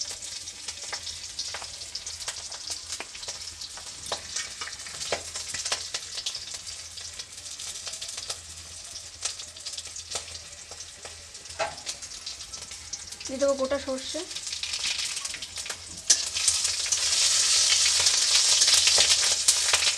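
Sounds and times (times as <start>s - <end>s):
spices sizzling and popping in oil: 0.0s - 19.9s.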